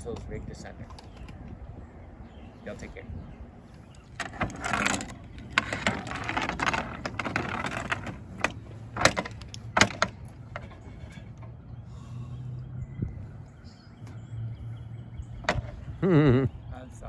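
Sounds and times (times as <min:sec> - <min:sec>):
ladder scraping across a roof: 0:04.1 - 0:11.7.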